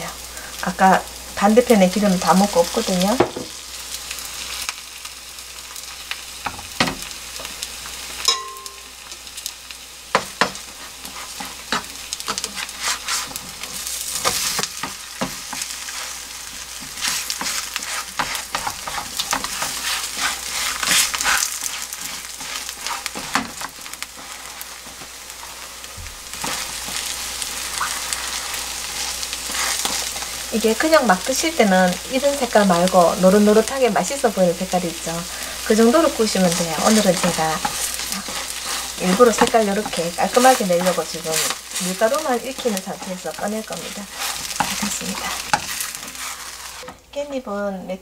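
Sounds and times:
pancake sizzling in oil: 0.0 - 47.0
spatula scraping and tapping pan: 10.1 - 25.6, 27.7 - 30.3, 36.5 - 47.0.

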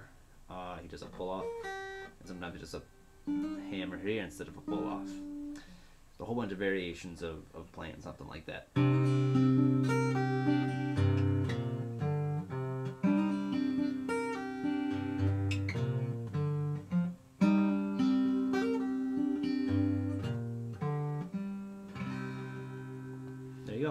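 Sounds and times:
acoustic guitar fingerpicking: 3.2 - 5.9, 8.8 - 23.9.

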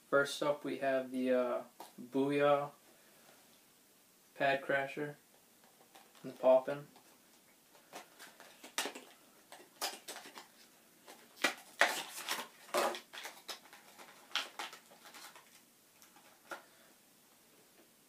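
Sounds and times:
packaging crinkling and rustling: 5.6 - 16.7.

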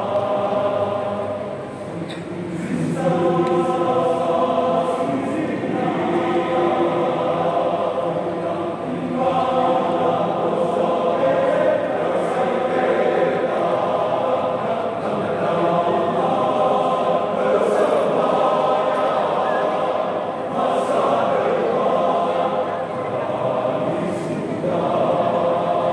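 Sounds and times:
men's choir singing: 0.0 - 25.9.

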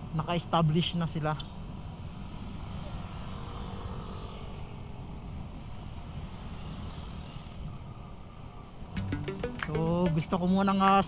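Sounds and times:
scooter engine and road noise: 0.0 - 11.0
wind rumble on microphone: 1.5 - 9.0.

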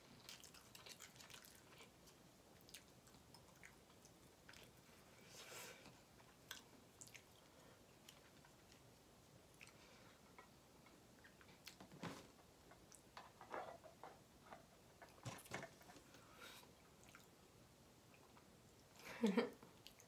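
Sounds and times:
person chewing noodles: 0.2 - 5.0, 5.8 - 11.8.

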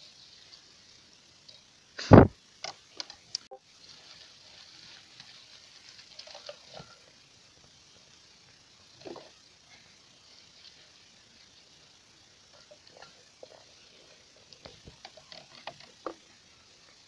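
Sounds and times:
leaves and twigs rustling: 0.0 - 17.0
loud thump: 2.1 - 2.3.

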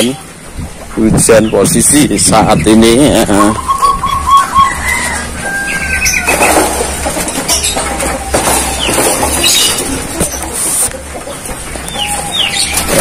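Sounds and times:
rain falling: 0.0 - 2.0
bird chirps: 1.3 - 6.7, 11.3 - 13.0.

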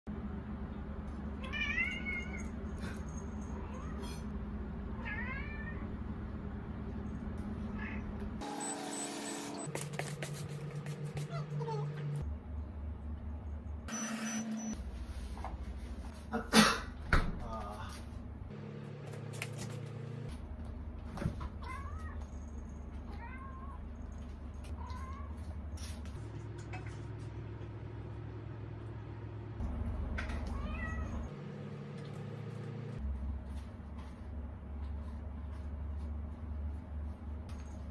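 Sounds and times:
cat meowing: 5.0 - 5.9.

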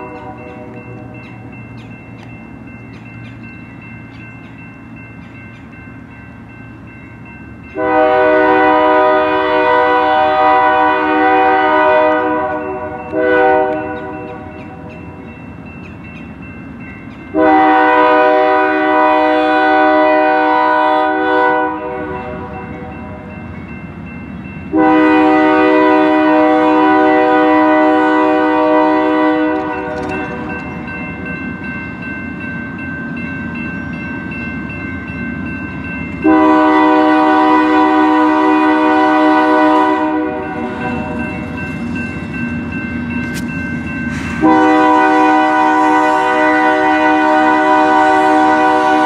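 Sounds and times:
crossing signal bell dinging: 0.0 - 49.0
train rumbling: 0.0 - 49.0
locomotive air horn: 7.8 - 14.4, 17.3 - 22.7, 24.7 - 30.5, 36.2 - 41.3, 44.2 - 49.0.

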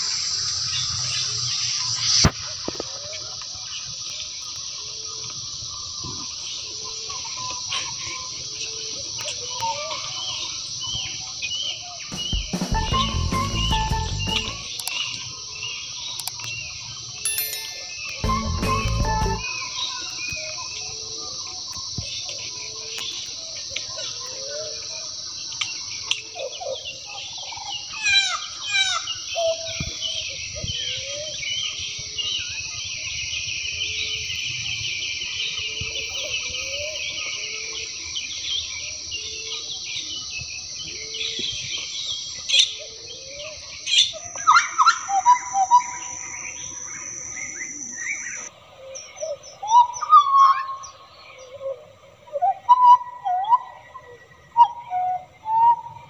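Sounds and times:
insect drone: 32.3 - 49.3
bird whistling song: 44.0 - 48.5.

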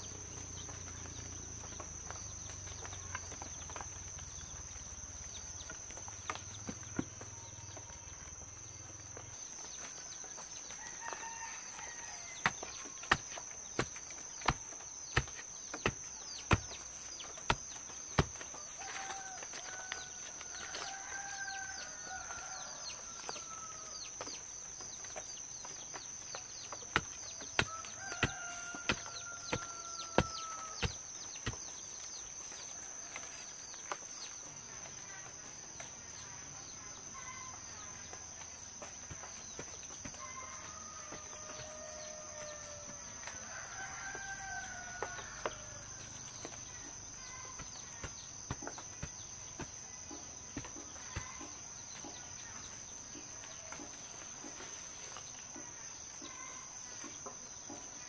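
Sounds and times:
rooster crowing: 10.7 - 13.0, 18.5 - 24.0, 27.6 - 31.0, 40.1 - 46.1.

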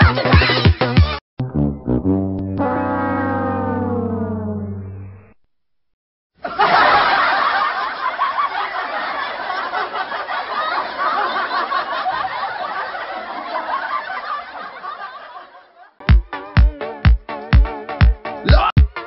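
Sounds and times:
crowd laughter: 6.4 - 16.0.

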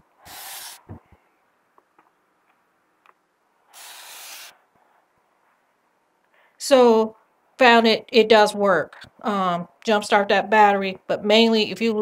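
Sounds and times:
soft hiss: 0.0 - 7.3.

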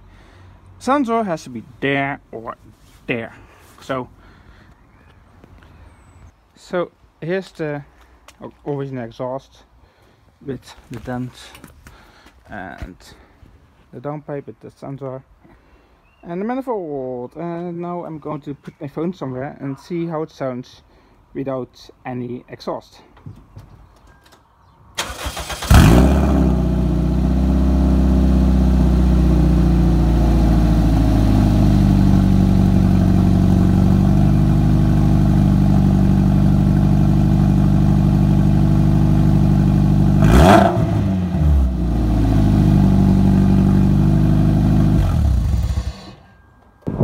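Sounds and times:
car engine idling: 25.3 - 46.2.

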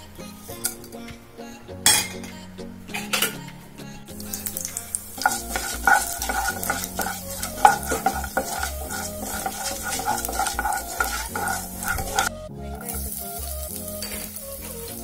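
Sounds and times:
oil sizzling and crackling: 4.1 - 15.0
wooden spatula stirring: 4.2 - 13.3.

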